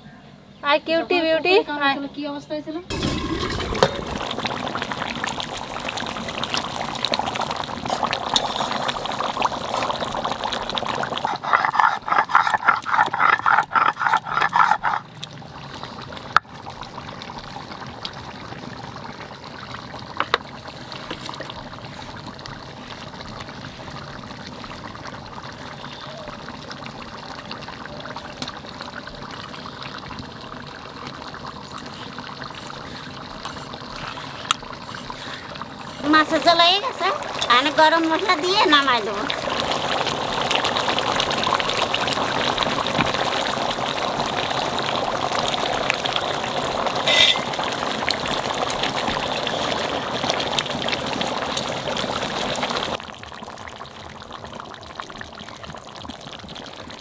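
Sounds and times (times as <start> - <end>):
curry bubbling in a pot: 2.9 - 57.0
scraping paste: 11.2 - 15.0
stone roller grinding on stone: 11.2 - 15.2, 33.9 - 37.6, 47.1 - 47.5.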